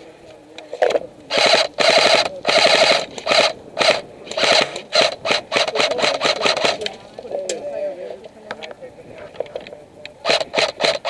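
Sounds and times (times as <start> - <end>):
airsoft rifle firing bursts: 0.8 - 6.9, 10.2 - 11.0.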